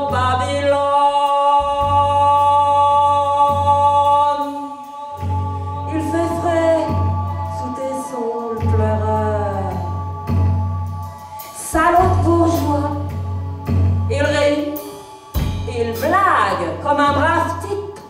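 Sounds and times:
person singing: 0.0 - 13.2
low bass notes: 5.2 - 17.8.

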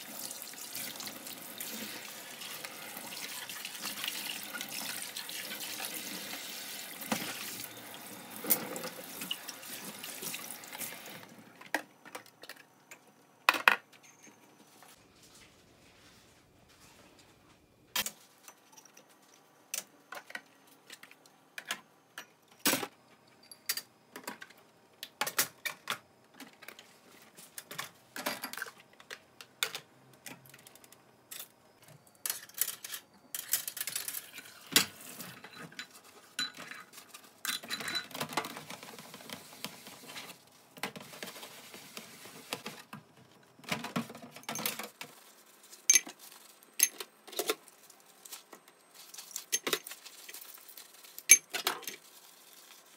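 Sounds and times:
glass and ceramic clinking on metal: 35.4 - 36.9, 45.9 - 46.2.

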